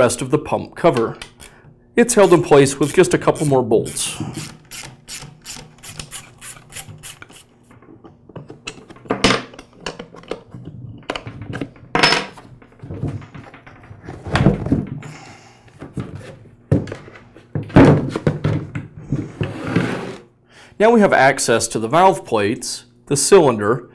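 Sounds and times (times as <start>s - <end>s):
socket ratchet clicking: 2.2s - 7.5s.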